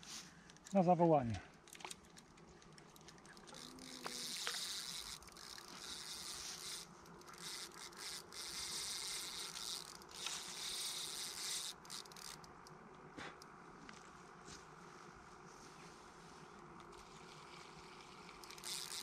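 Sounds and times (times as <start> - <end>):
fishing reel drag buzzing: 2.9 - 12.8, 16.8 - 19.0.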